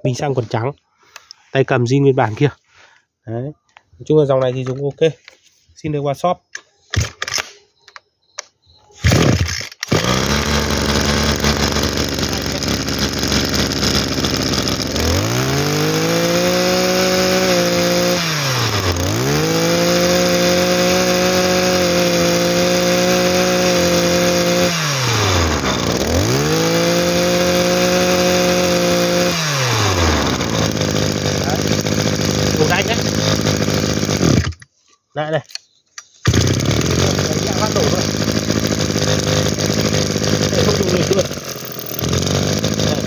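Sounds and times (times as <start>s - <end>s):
brush cutter engine revving: 6.9s - 7.5s, 8.9s - 34.7s, 36.1s - 43.0s.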